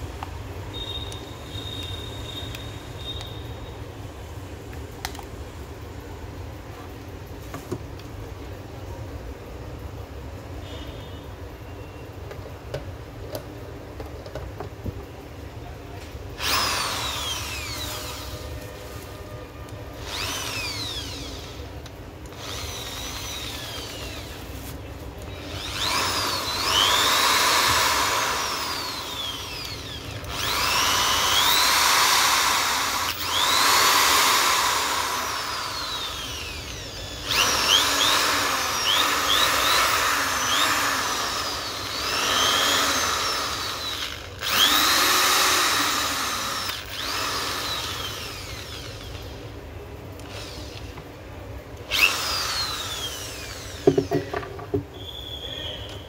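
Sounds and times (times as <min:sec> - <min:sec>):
electric drill motor whining: 0:16.4 - 0:18.4, 0:20.0 - 0:21.7, 0:22.3 - 0:24.7, 0:25.3 - 0:49.4, 0:50.2 - 0:51.0, 0:51.9 - 0:54.5.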